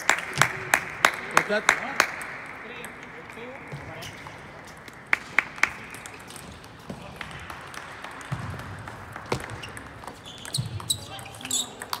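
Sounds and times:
large hall background: 0.0 - 12.0
table tennis ball clicks: 7.5 - 12.0.

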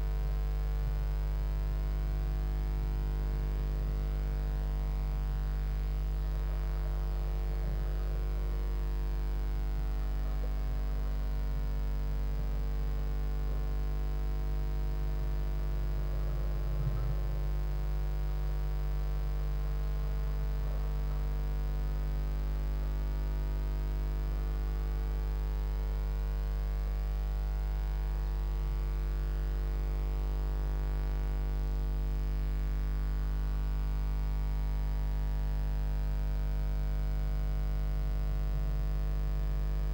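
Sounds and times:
electrical mains hum: 0.0 - 34.3
faint bump: 16.3 - 17.6.

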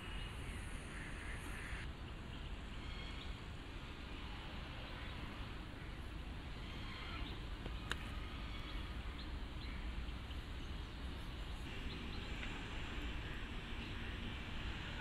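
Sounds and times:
low rumble and hiss: 0.0 - 15.0
faint bird chirps: 4.3 - 12.4.

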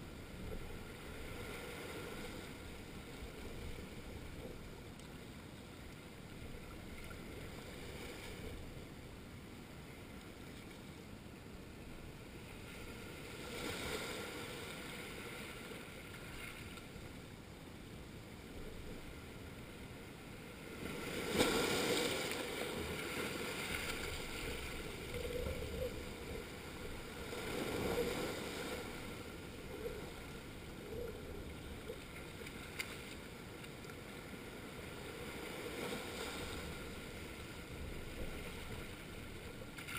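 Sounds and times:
small waves washing on rocks: 20.7 - 29.6.

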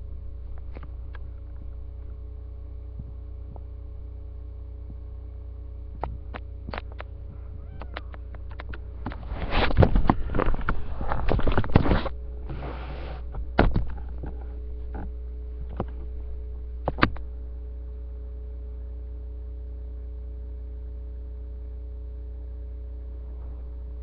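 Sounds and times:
electrical hum: 0.0 - 24.0
sharp clicks: 6.0 - 7.1, 7.7 - 10.1.

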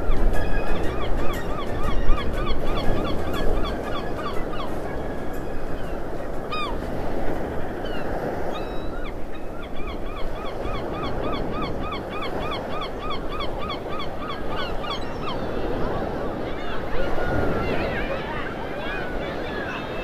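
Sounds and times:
birds calling: 0.0 - 20.0
surf rushing: 12.4 - 20.0.

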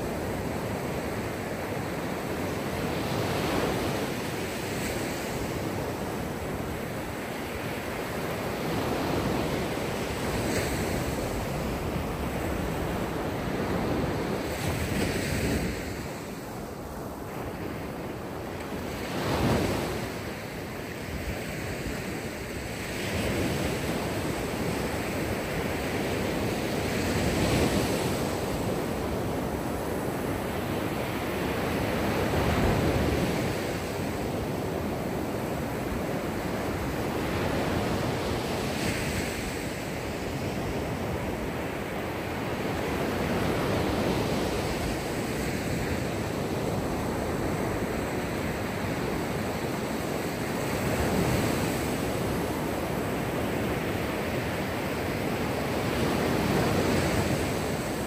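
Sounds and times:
waves washing onto shore: 0.0 - 58.0.

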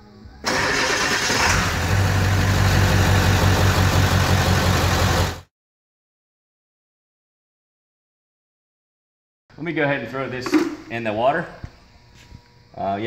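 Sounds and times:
diesel engine starting: 0.4 - 5.5.

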